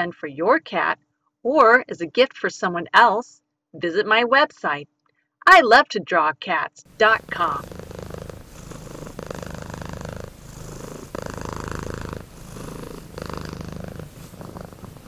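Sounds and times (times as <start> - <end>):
cat purring: 6.9 - 15.0.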